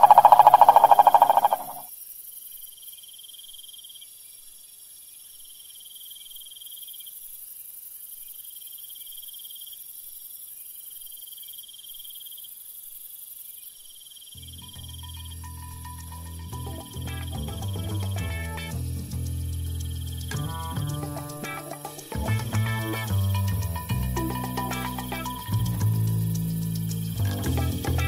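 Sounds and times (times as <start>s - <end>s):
very high hiss: 0.0s - 1.9s, 14.8s - 28.0s
insect trilling: 0.0s - 4.1s, 10.5s - 28.0s.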